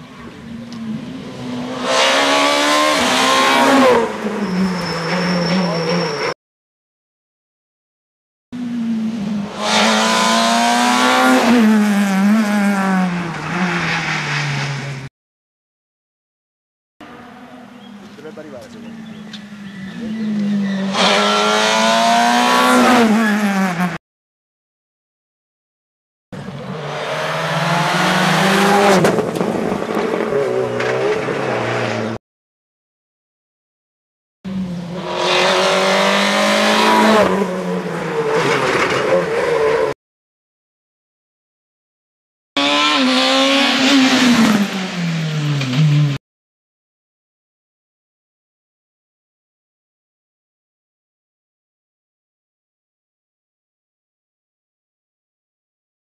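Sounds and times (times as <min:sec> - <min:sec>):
rally car passing at full throttle: 0:00.8 - 0:06.2, 0:19.0 - 0:24.0, 0:26.4 - 0:32.2, 0:34.5 - 0:39.9.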